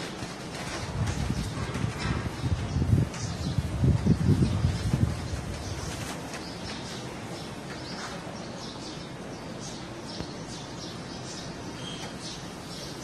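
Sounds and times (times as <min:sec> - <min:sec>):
birds chirping: 0:00.0 - 0:13.0
gusty wind: 0:00.2 - 0:07.7.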